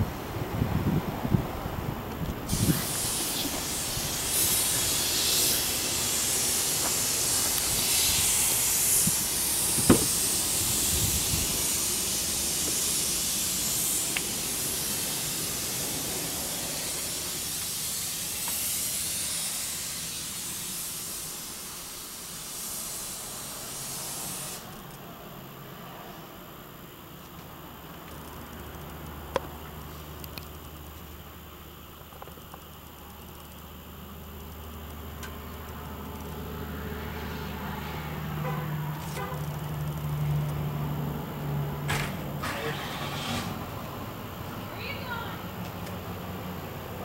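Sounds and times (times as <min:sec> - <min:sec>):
airy hiss: 0:00.0 - 0:24.9
thump: 0:09.8 - 0:10.2, 0:41.9 - 0:42.2.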